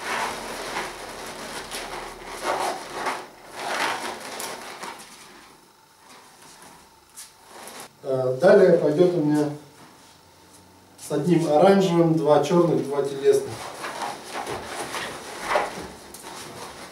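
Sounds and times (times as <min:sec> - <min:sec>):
balloons rubbing and rustling: 0:00.0 - 0:08.0, 0:13.1 - 0:16.9.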